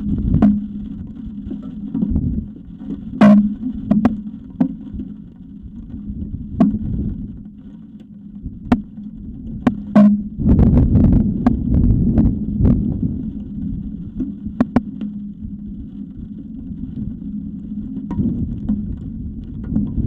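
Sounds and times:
wind buffeting microphone: 0:00.0 - 0:04.2, 0:05.6 - 0:07.5, 0:08.4 - 0:20.0
sharp clicks and knocks: 0:00.1 - 0:02.2, 0:02.8 - 0:05.2, 0:05.8 - 0:10.3, 0:14.2 - 0:15.2.

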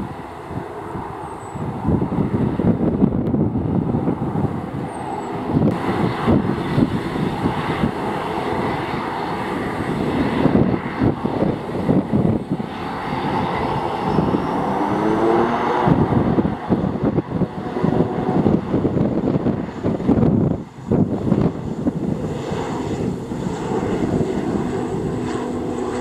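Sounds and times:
turboprop engines running: 0:00.0 - 0:26.0
wind buffeting microphone: 0:00.0 - 0:26.0
rising tone: 0:12.6 - 0:17.0.

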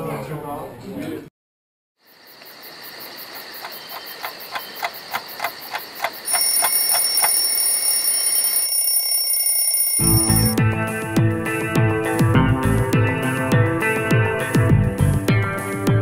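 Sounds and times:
alarm clock ringing: 0:06.3 - 0:10.5.

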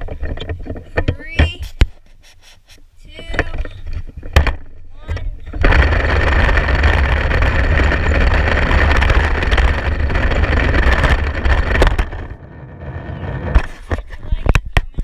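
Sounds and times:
toy truck wheels rolling on pavement: 0:03.4 - 0:15.0.

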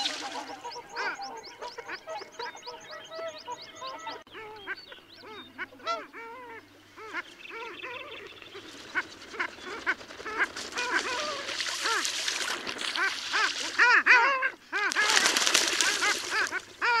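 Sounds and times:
ducks calling: 0:00.0 - 0:17.0.

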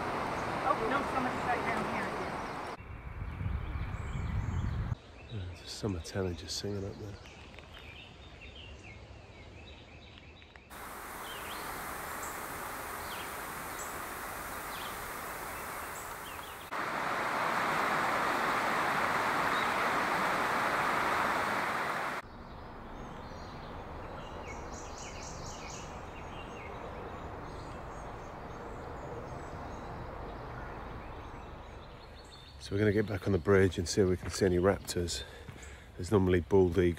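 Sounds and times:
steady rushing hiss: 0:00.0 - 0:02.8, 0:10.7 - 0:22.2
songbird calls: 0:00.0 - 0:06.1, 0:09.6 - 0:36.1.

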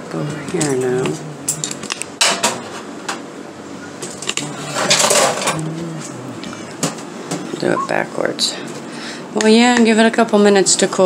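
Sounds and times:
metal pots clattering in sink: 0:04.8 - 0:05.6.

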